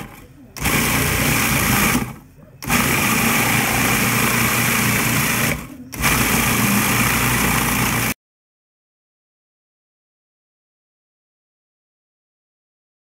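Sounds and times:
food processor running: 0.0s - 8.2s.

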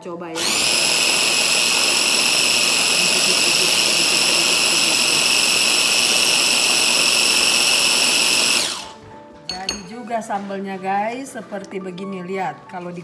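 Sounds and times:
food chopper motor whining: 0.3s - 9.0s.

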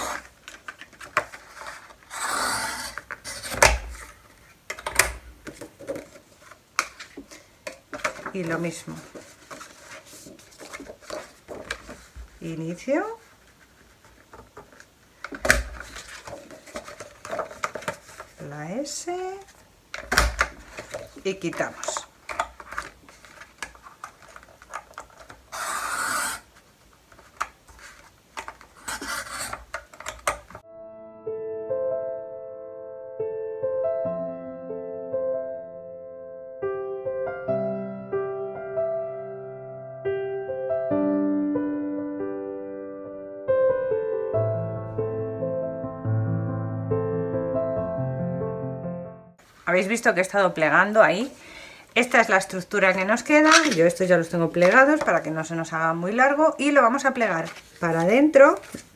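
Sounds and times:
cardstock rustling and sliding: 0.0s - 12.4s, 13.2s - 18.5s, 20.2s - 30.6s, 57.1s - 58.9s.

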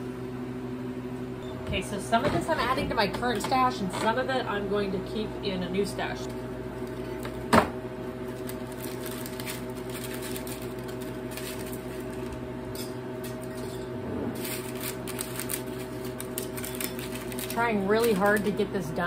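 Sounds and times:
steady machine hum: 0.0s - 19.0s
paper and chips crinkling: 8.2s - 12.4s, 14.4s - 19.0s.

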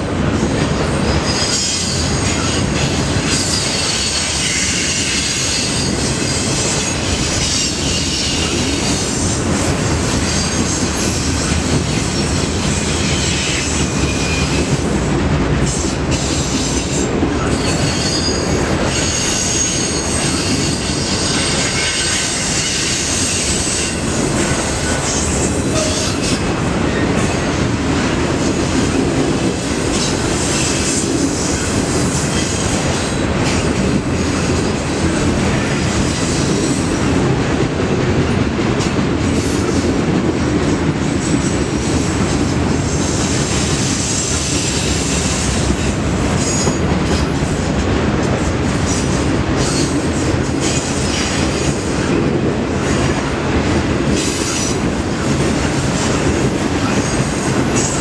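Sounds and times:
train wheels rumbling on rails: 0.0s - 58.0s
high wheel squeal: 1.2s - 9.1s, 15.8s - 26.4s.

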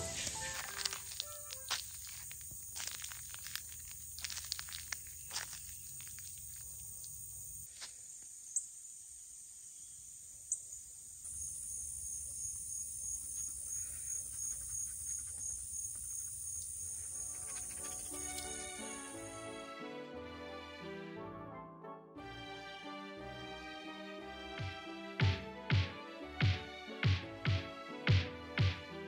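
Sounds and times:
insects droning: 0.0s - 19.5s.

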